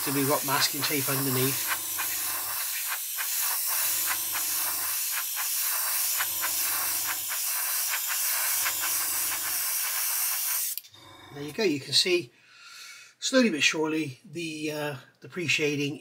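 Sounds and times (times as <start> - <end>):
airbrush hissing and spitting: 0.0 - 10.8.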